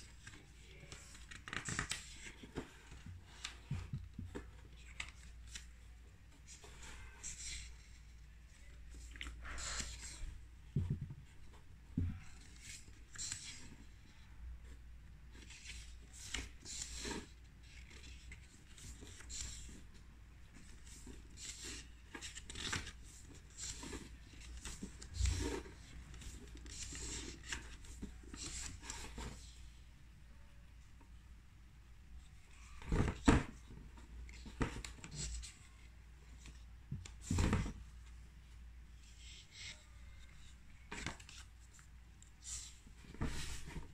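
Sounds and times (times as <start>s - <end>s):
paper pages rustling: 0.0s - 13.9s, 14.6s - 29.6s, 39.0s - 43.9s
soft thumps of book handled: 10.7s - 12.4s.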